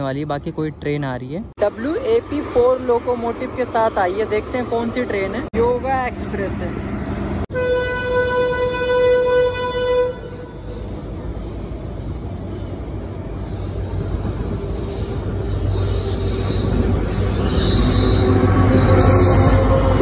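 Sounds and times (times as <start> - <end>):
train rumble and wheel noise: 0.0 - 20.0
locomotive horn: 7.5 - 10.8, 16.2 - 20.0.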